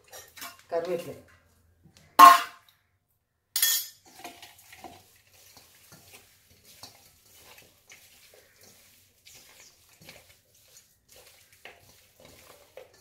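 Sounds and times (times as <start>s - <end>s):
food mixed by hand in bowl: 0.0s - 2.1s, 4.0s - 13.0s
metal clink on steel bowl: 3.6s - 4.2s.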